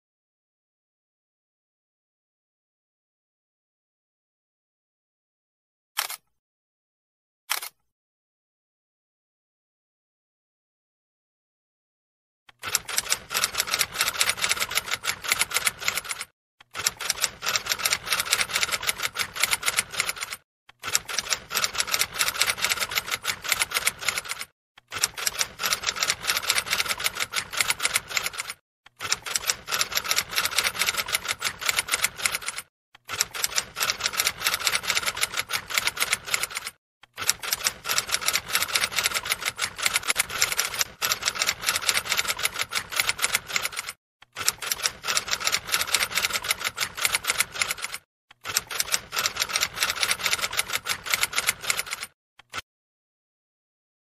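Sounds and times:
rapid keyboard typing: 12.6s - 52.6s.

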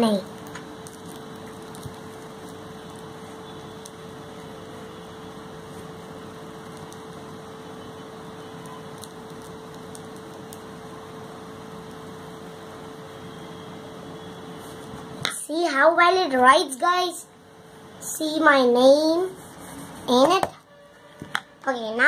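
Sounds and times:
steady machine hum: 0.0s - 15.5s.

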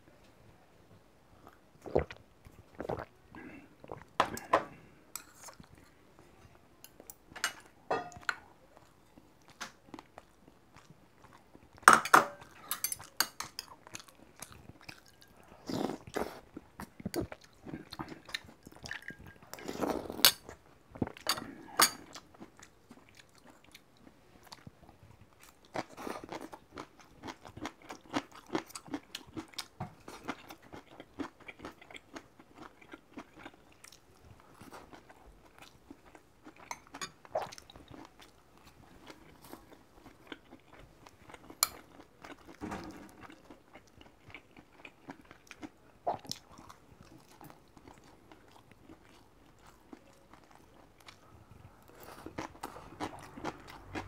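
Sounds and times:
crunchy chewing: 13.0s - 54.0s
slurping soup: 19.5s - 20.4s.

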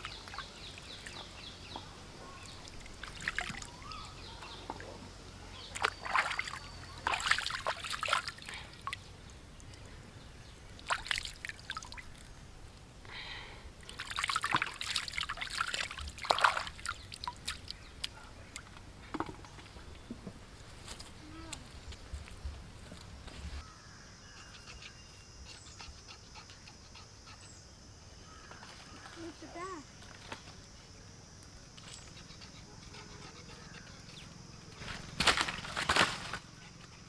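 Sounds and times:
hands splashing in water: 2.9s - 3.7s, 5.7s - 9.0s, 10.8s - 12.1s, 13.9s - 17.7s
water trickling and dripping: 10.8s - 12.3s, 13.8s - 18.2s.

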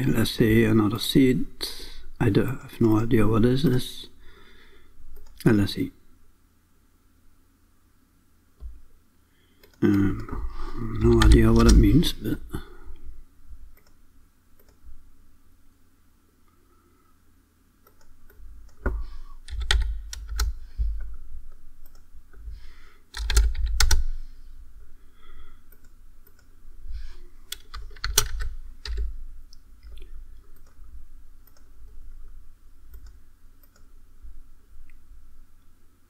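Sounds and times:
computer keyboard typing: 11.0s - 11.9s, 17.9s - 21.2s, 23.1s - 24.2s, 27.5s - 29.1s.

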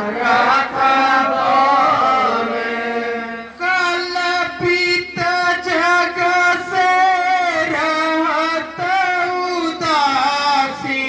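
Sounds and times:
person singing a hymn: 0.0s - 11.0s.

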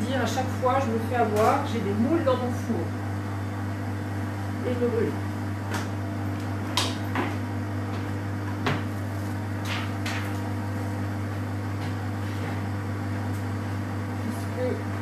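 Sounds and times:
kitchen appliances humming: 0.0s - 15.0s.

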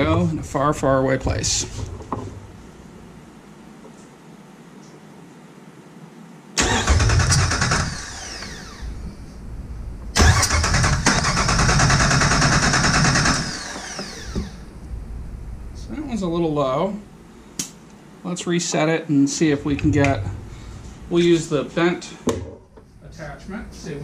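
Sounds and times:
starter motor cranking engine: 6.6s - 9.0s, 10.2s - 14.6s.

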